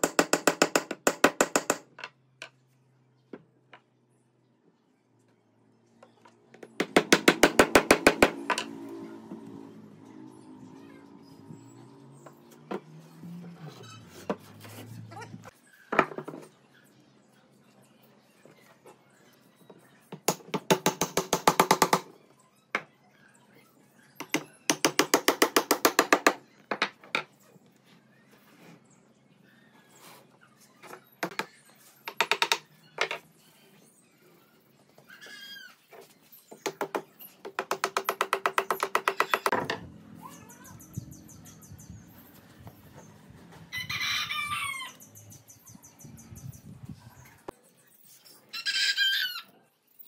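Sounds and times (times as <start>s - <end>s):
faint background music: 8.2s - 24.9s.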